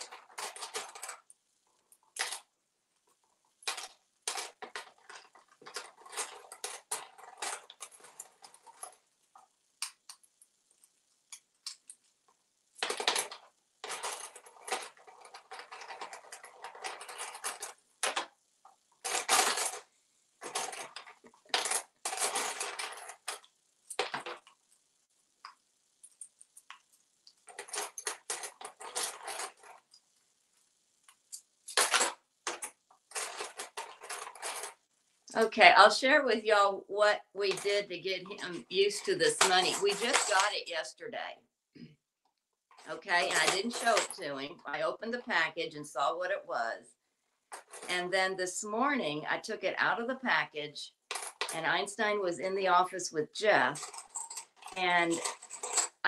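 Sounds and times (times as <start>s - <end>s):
toy coins clinking in plastic tray: 0.0s - 1.3s, 2.2s - 2.5s, 3.6s - 8.9s, 12.8s - 18.3s, 19.0s - 19.8s, 20.4s - 24.5s, 27.4s - 29.8s, 31.3s - 35.5s, 38.3s - 40.6s, 42.8s - 45.3s, 51.1s - 51.8s, 53.6s - 56.0s.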